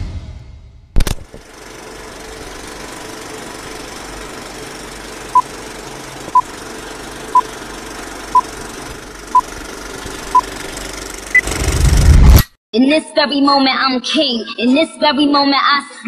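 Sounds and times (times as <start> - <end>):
film projector whirring and rattling: 1.0 - 12.1.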